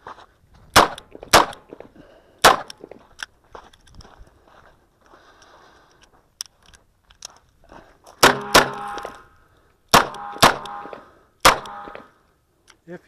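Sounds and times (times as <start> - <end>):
soft shuffling: 0.0 - 0.7, 2.9 - 6.3
revolver gunshots: 0.8 - 1.7, 2.4 - 2.7, 8.2 - 9.2, 9.9 - 12.1.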